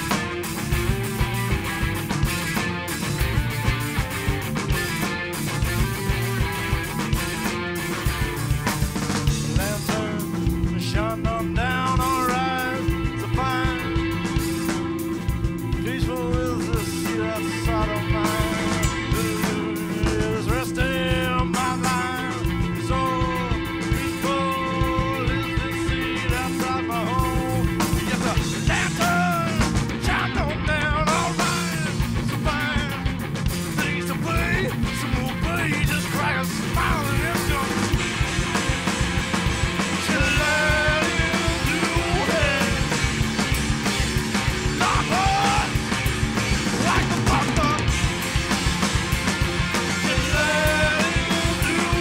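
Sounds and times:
drum kit beat: 0.0 - 52.0
electric guitars: 0.0 - 52.0
rock band playing: 0.0 - 52.0
man singing long notes: 9.5 - 14.3, 15.8 - 33.2, 40.0 - 43.0, 44.8 - 45.8, 46.7 - 48.0, 50.0 - 52.0.

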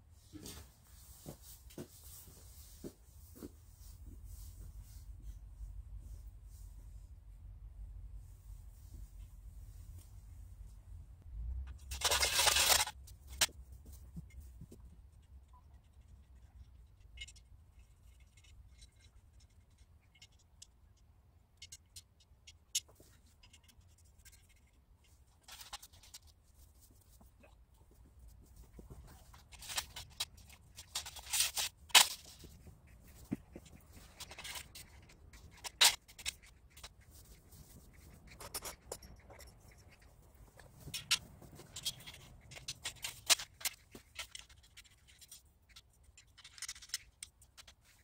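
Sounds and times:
metal pieces scraping: 11.8 - 13.5.

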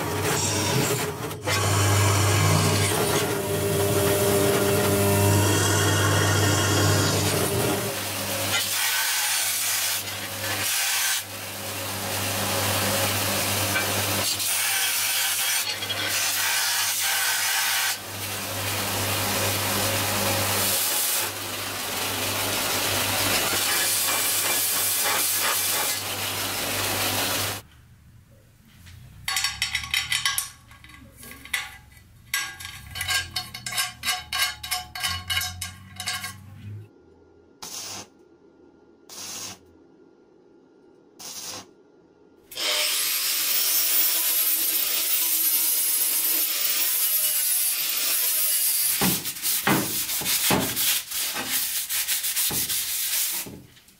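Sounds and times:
steel grinding on belt: 29.8 - 36.8.

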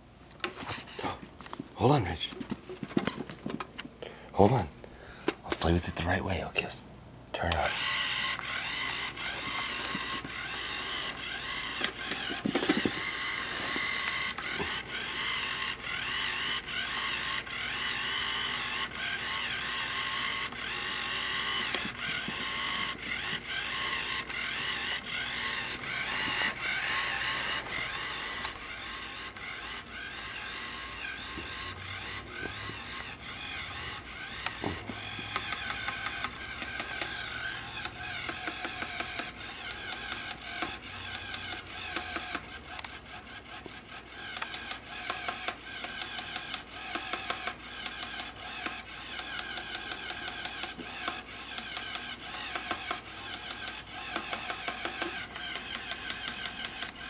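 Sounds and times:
toy motor whirring and clattering: 7.5 - 57.0
sharp clicks: 33.4 - 43.0, 44.3 - 57.0.

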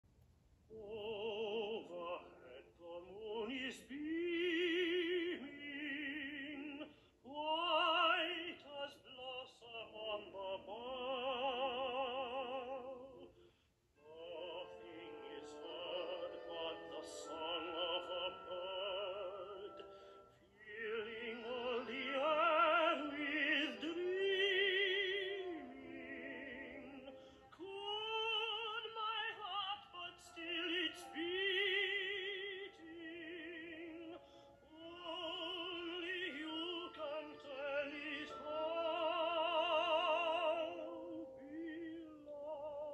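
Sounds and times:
operatic solo singing: 14.0 - 42.9.

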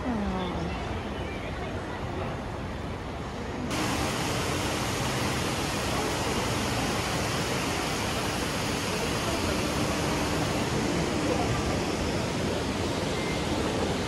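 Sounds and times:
running water rushing: 3.7 - 14.0.

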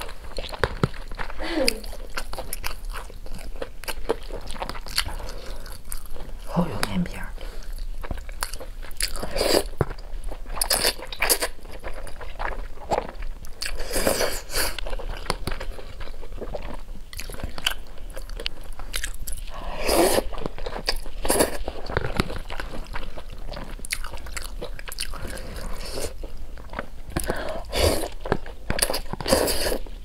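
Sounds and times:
wet chewing: 0.0 - 30.0
person slurping noodles: 9.2 - 9.7, 19.6 - 20.3, 27.2 - 28.2, 29.2 - 29.9.

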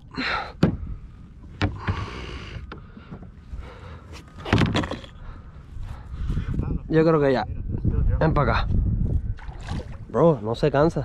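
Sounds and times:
water splashing against kayak: 9.2 - 10.2.

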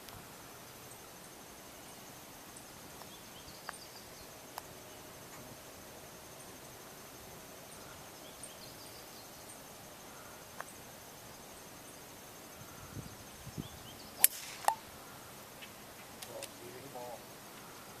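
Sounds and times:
insects trilling: 0.0 - 18.0
golf club striking ball: 14.2 - 14.8.

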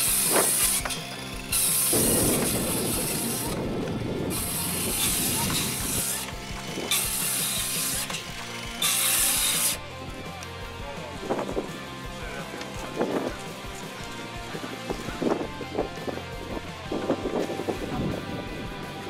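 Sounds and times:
circular saw cutting wood: 0.0 - 9.9.

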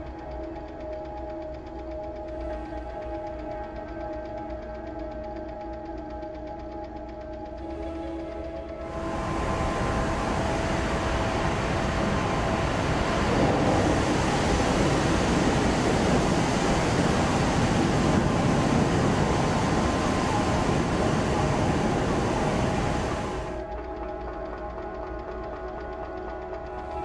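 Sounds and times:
steam rushing roar: 8.8 - 23.6.

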